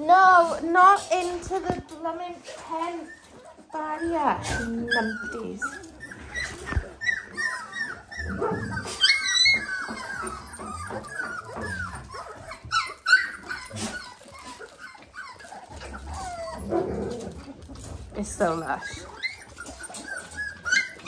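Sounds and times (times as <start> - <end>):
puppies squeaking and whimpering: 0.0 - 21.0.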